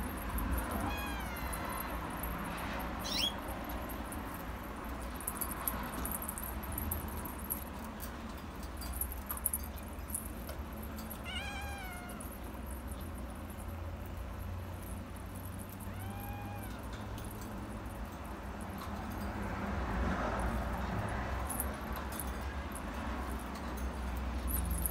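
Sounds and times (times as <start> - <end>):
kitten meowing: 0.8 - 1.9, 11.2 - 12.2, 15.9 - 16.8.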